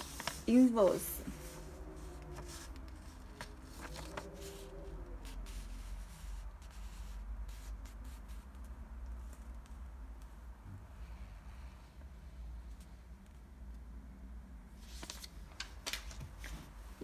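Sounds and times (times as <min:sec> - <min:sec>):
paper receipt rustling: 0:00.0 - 0:07.0.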